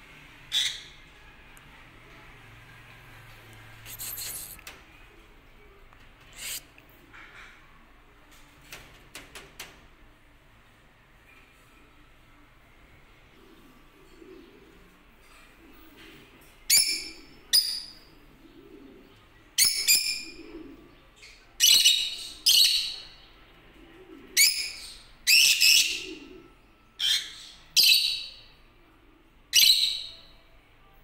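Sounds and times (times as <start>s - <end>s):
lovebirds high-pitched calls: 6.3s - 6.6s, 16.7s - 18.1s, 19.6s - 23.2s, 24.4s - 26.2s, 27.0s - 28.6s, 29.5s - 30.4s.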